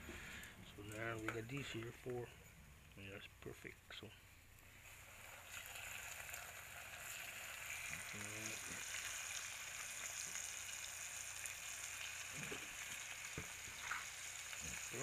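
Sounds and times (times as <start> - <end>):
fish frying in hot oil: 4.7 - 15.0.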